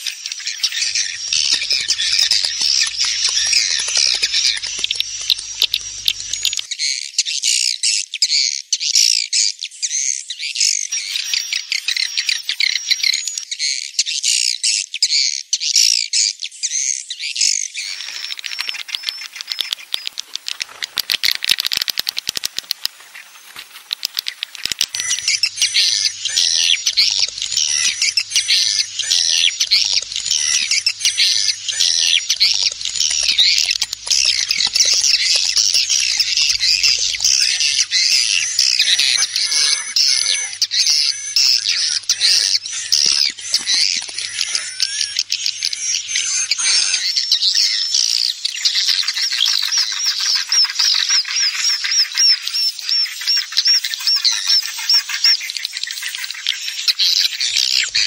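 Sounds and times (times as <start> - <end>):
swiftlets twittering: 0.0 - 6.7, 17.8 - 47.1, 56.2 - 58.0
sharp clicks: 0.8 - 6.7, 17.8 - 46.5.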